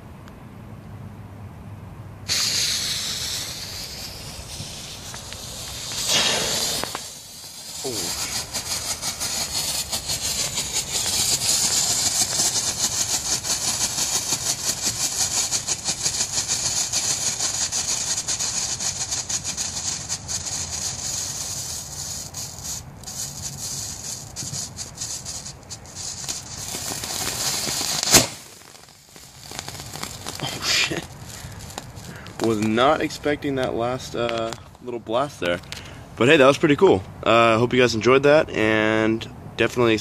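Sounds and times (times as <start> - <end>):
firework bang: 2.3 - 20.5, 23.7 - 32.8
firework hissing and crackling: 2.3 - 36.1.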